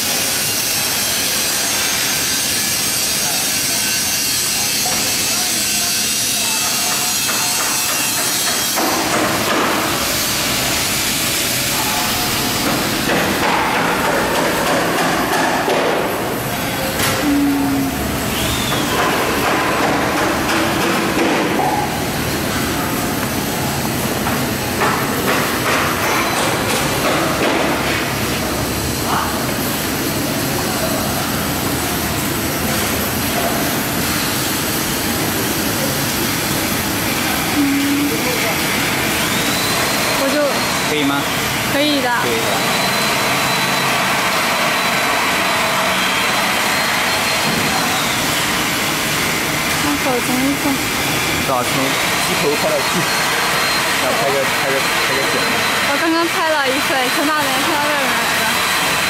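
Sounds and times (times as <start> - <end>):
wire-stranding machine running: 0.0 - 59.0
wire stranding machine whirring: 31.4 - 59.0.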